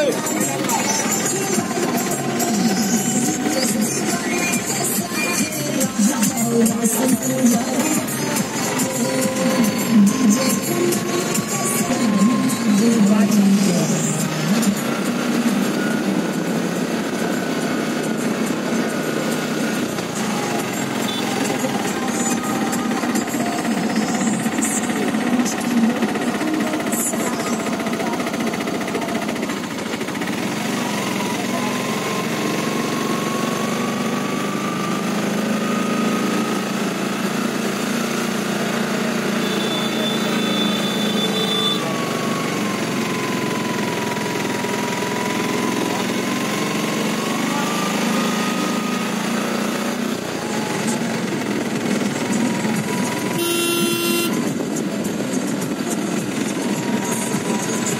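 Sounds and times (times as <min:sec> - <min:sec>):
small engine chugging: 0:00.0 - 0:37.7
road and wind noise: 0:00.0 - 0:57.9.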